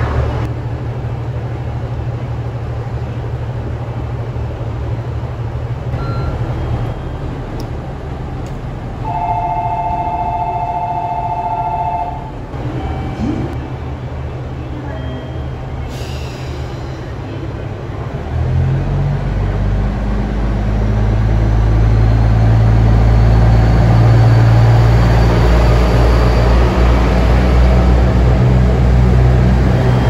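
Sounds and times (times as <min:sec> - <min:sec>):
diesel engines idling: 0:00.0 - 0:30.0
electronic two-tone bell: 0:06.0 - 0:06.4.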